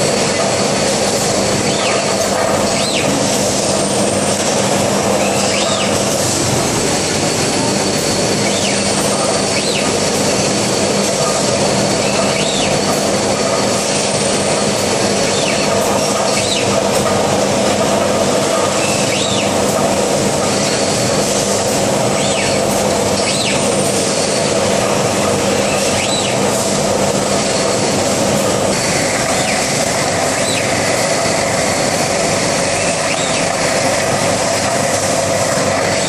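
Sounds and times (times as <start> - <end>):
machining cell running: 0.0 - 36.0.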